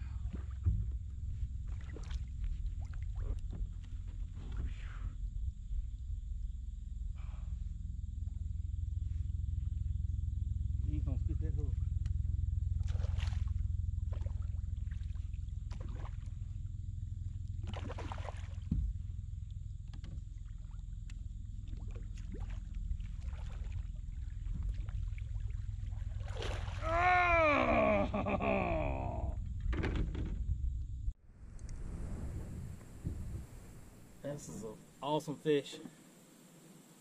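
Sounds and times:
steady low rumble: 0.0s - 35.4s
fish splashing at surface: 17.6s - 18.7s, 24.7s - 26.8s.

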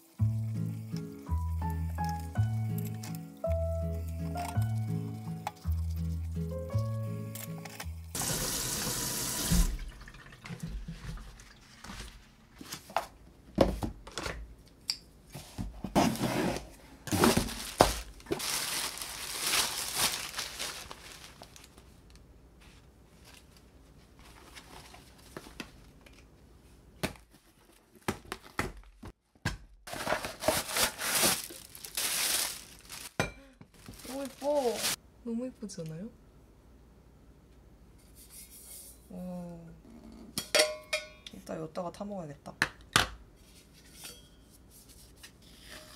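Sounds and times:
kitchen tap running: 8.2s - 11.8s
cardboard packaging rustling: 15.8s - 26.3s, 29.9s - 33.2s, 33.8s - 35.0s.

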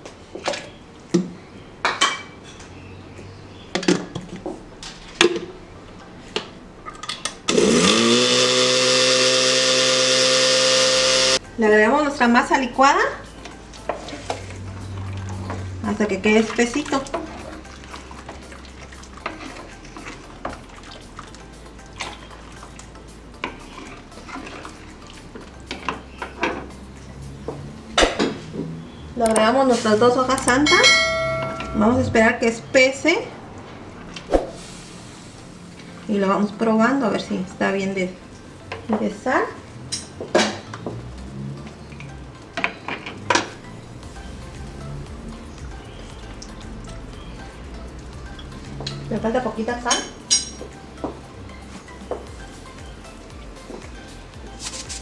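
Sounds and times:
blender motor running: 7.5s - 11.4s
ladle stirring thick sauce: 16.4s - 21.4s, 23.4s - 25.5s.

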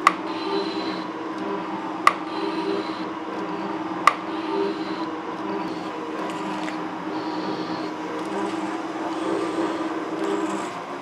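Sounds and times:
machine hum: 0.0s - 11.0s
high scraping of cutting tool: 5.6s - 11.0s.

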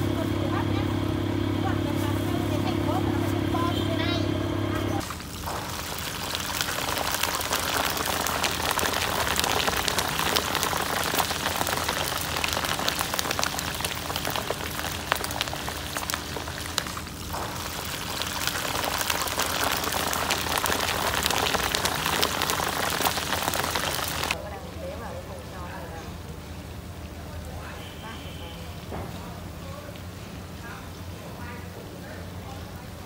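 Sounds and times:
shrimp sizzling in hot oil: 5.0s - 24.4s.

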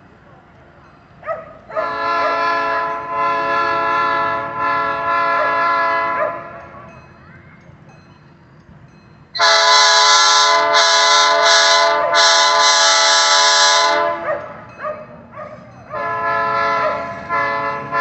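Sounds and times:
locomotive air horn: 1.7s - 6.8s, 9.4s - 14.6s, 15.9s - 18.0s.

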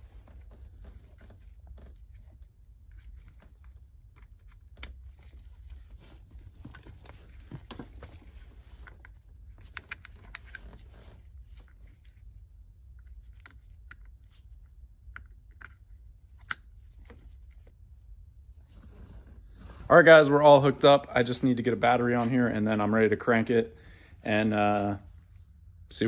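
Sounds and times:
gloved hands rustling: 0.0s - 17.9s.

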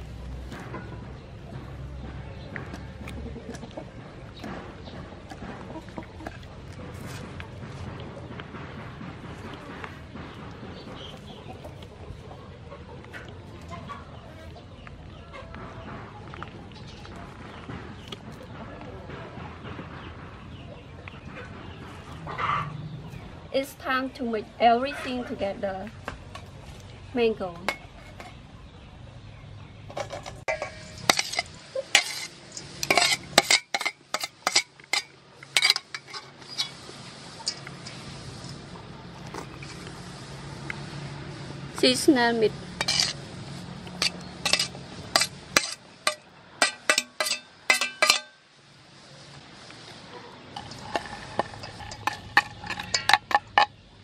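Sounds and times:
chickens clucking: 0.0s - 54.0s
low background noise: 0.0s - 54.0s
metal plate clinking on steel bowl: 29.9s - 36.8s, 42.8s - 43.2s, 43.9s - 48.4s, 50.6s - 53.8s.

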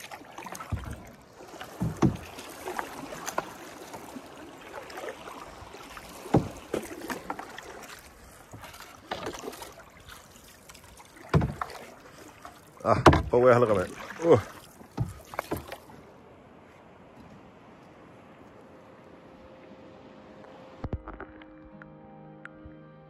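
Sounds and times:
paddle knocking on canoe: 0.0s - 15.9s
paddle strokes splashing in water: 0.0s - 17.6s.

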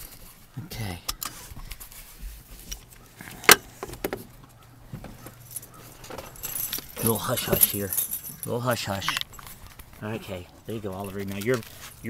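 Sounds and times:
rustling: 1.2s - 12.0s
small metal jingling: 4.5s - 12.0s.

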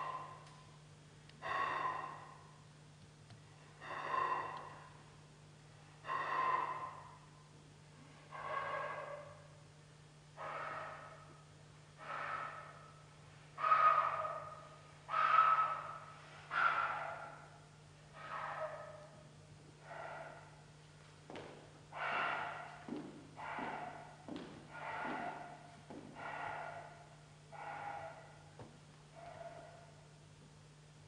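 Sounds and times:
faint low hum: 0.0s - 31.0s.

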